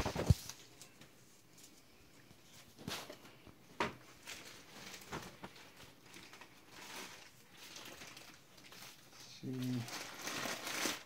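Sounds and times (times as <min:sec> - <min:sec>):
packing material rustling: 0:04.0 - 0:11.0.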